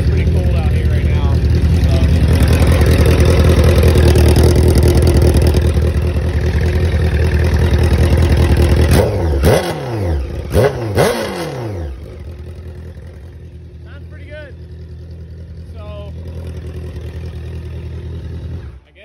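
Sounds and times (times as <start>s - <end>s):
motorcycle engine idling and revving: 0.0s - 19.0s.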